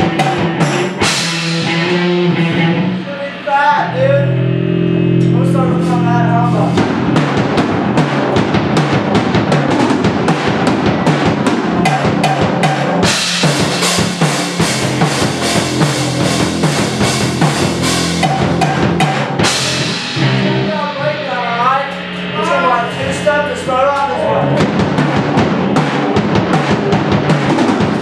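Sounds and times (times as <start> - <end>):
amplified electric guitar: 0.0 - 28.0
drum kit playing fast beat: 0.0 - 28.0
cymbals crashing: 11.9 - 28.0.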